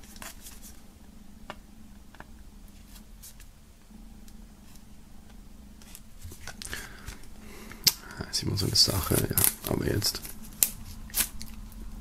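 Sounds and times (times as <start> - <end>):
low steady hum: 0.0 - 12.0
knife scraping plastic film: 9.0 - 11.4.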